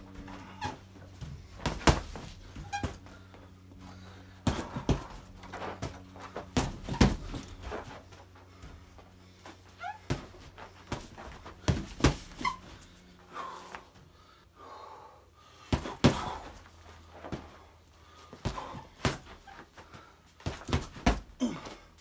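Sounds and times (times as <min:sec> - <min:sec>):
hard breathing: 0:00.1 - 0:06.6, 0:12.7 - 0:20.6
punches thudding into heavy bag: 0:01.5 - 0:03.0, 0:04.4 - 0:08.0, 0:10.1 - 0:12.6, 0:15.7 - 0:16.6, 0:18.4 - 0:19.5, 0:20.4 - 0:21.7.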